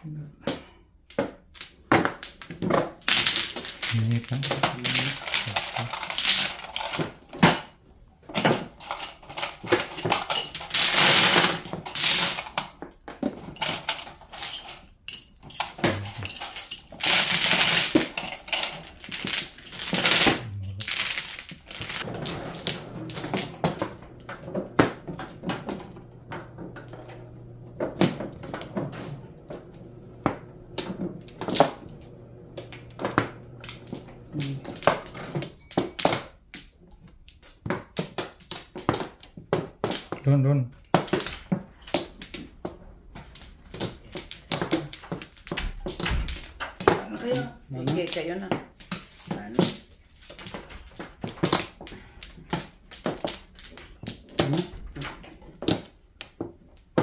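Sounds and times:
mahjong tiles clattering: 0.5 - 32.0, 40.9 - 57.0
low mechanical hum: 22.1 - 35.4.

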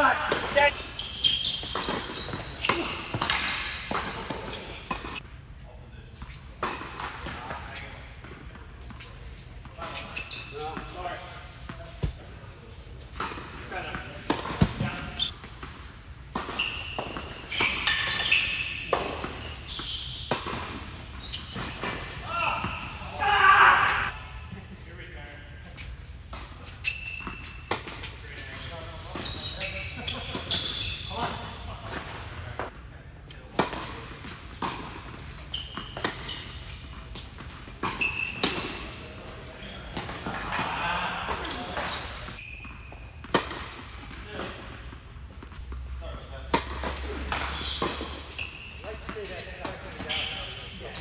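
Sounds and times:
shoes squeaking: 0.0 - 5.2, 6.0 - 23.2, 23.8 - 51.0
tennis ball hit by rackets: 43.2 - 43.8.

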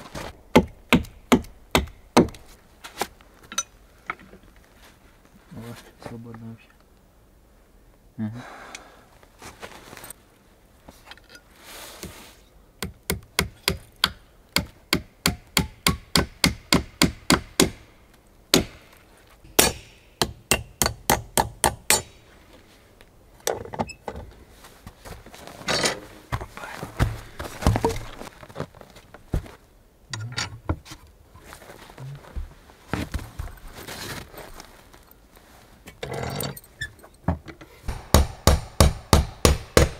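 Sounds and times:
hammer striking wood: 0.5 - 2.4, 12.8 - 17.9, 18.5 - 18.9, 19.5 - 22.2, 37.9 - 39.9.

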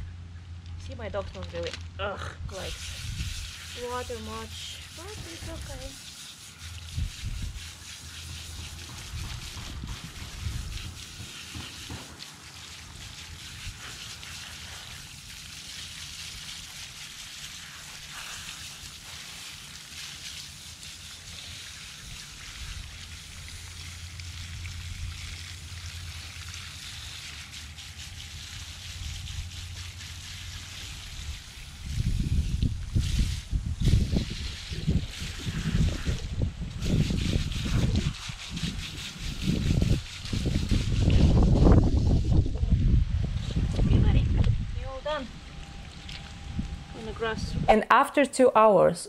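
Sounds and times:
water spattering on gravel: 0.8 - 42.5
hose nozzle spraying water: 2.5 - 42.6
low rumble: 39.5 - 47.7.

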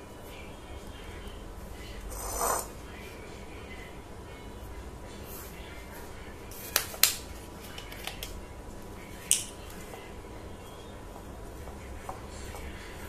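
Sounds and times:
scratchy scrape on a plate: 2.1 - 2.7
dough squishing and rustling: 4.6 - 13.0.

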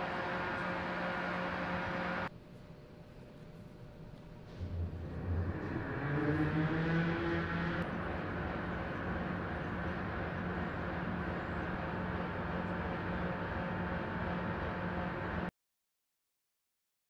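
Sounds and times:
rising motor whine: 0.0 - 2.3, 4.5 - 15.5
heavy machinery hum and rumble: 0.0 - 15.5.

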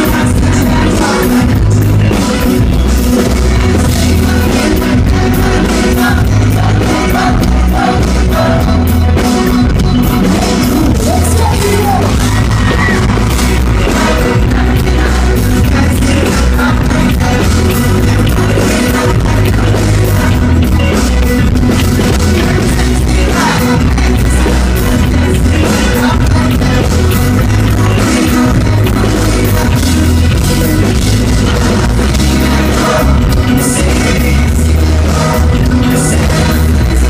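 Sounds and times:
live rock band playing: 0.0 - 37.0
man singing: 0.0 - 37.0.

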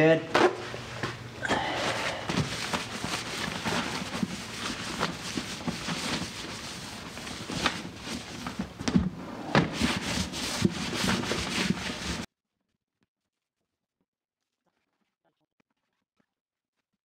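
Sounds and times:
rag rubbing plastic: 2.3 - 12.3.

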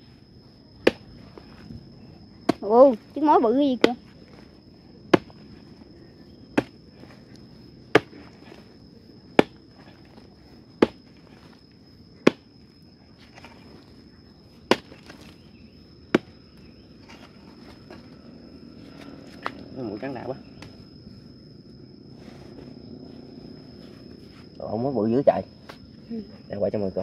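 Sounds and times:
high insect trill: 0.0 - 27.0
digging tool striking hard earth: 7.9 - 8.4, 9.4 - 9.9, 10.8 - 11.1, 14.7 - 15.4.

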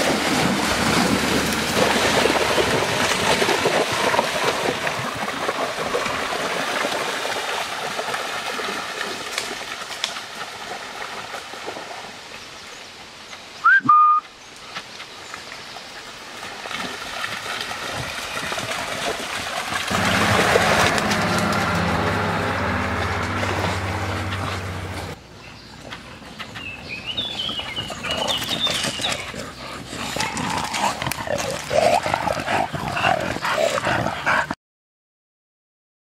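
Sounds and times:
dogs splashing in water: 0.0 - 12.2, 16.3 - 34.6
water rushing: 0.0 - 12.4, 16.2 - 25.2
short rising whistle: 13.6 - 14.2.

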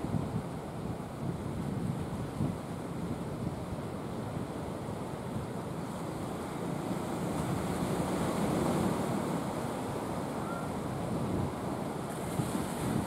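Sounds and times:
wind buffeting microphone: 0.0 - 6.0, 10.4 - 13.0
sea surf washing: 0.0 - 13.0.

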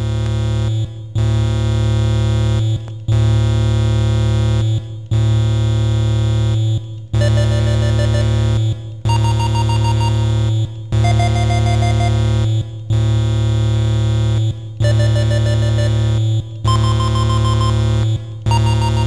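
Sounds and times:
chiptune synthesizer chords: 7.2 - 12.6, 14.8 - 19.0.

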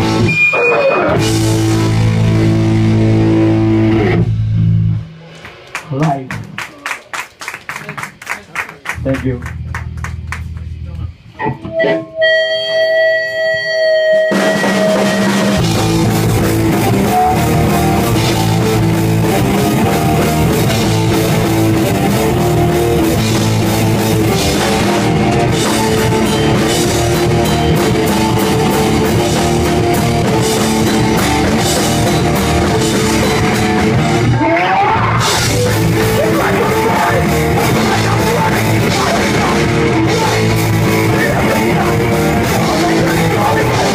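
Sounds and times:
rising guitar slide: 0.0 - 4.9, 11.3 - 43.9
rock band playing live: 0.0 - 6.6, 9.0 - 43.9
ringing guitar notes: 11.3 - 34.4.

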